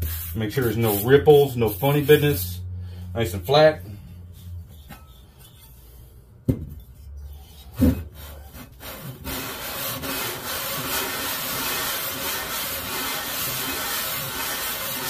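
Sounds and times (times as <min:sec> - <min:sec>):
metal rubbing on sandpaper: 0:00.0 - 0:02.5, 0:08.3 - 0:15.0.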